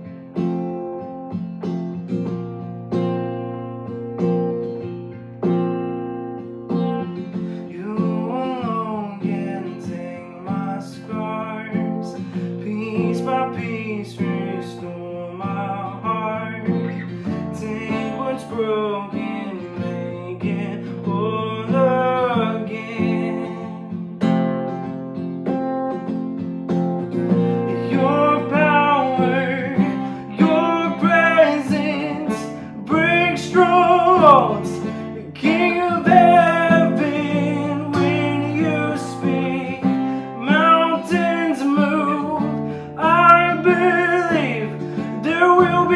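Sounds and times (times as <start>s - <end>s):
strummed acoustic guitar: 0.0s - 45.9s
man singing: 7.6s - 24.0s, 27.3s - 45.9s.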